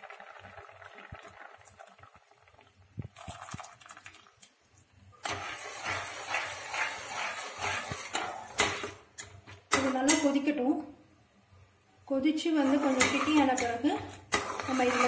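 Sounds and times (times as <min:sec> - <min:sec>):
ladle scraping metal pot: 0:05.2 - 0:10.4, 0:12.4 - 0:15.0.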